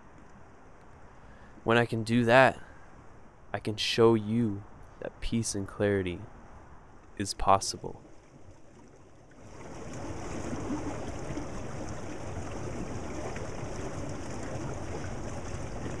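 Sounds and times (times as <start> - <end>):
water running in creek: 7.2 - 16.0.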